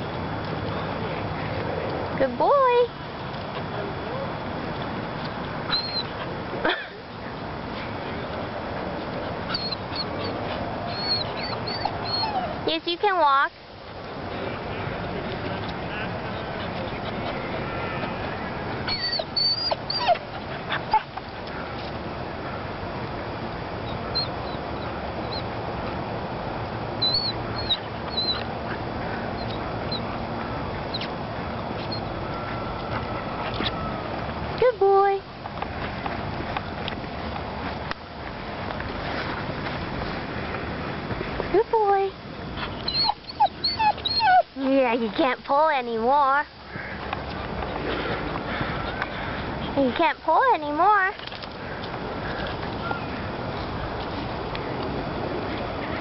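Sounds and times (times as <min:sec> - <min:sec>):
steady background noise: 0:00.0 - 0:56.0
dog whimpering: 0:05.7 - 0:06.1, 0:09.5 - 0:12.6, 0:18.9 - 0:21.2, 0:27.0 - 0:28.4, 0:42.6 - 0:44.5.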